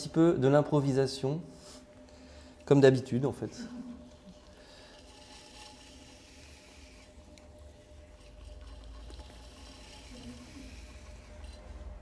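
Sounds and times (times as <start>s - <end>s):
potter's wheel humming: 0.0s - 12.0s
wet clay rubbing under hands: 4.0s - 12.0s.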